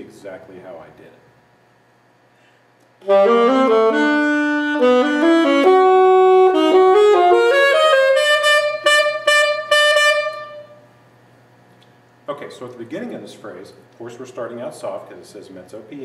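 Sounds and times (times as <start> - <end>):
solo saxophone jazz phrase: 3.0 - 10.9.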